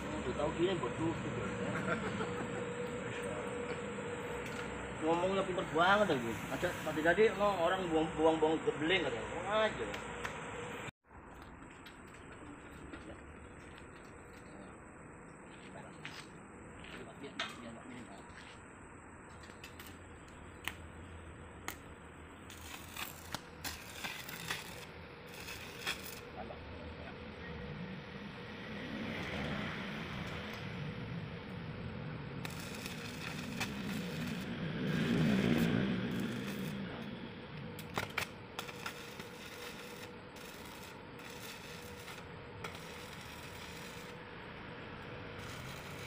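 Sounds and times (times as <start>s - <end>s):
arc welding crackle: 0.0s - 14.8s, 19.3s - 27.0s, 28.0s - 46.0s
sharp welding clicks: 9.8s - 10.4s, 19.3s - 20.9s, 21.6s - 26.3s, 32.4s - 44.2s, 45.0s - 46.0s.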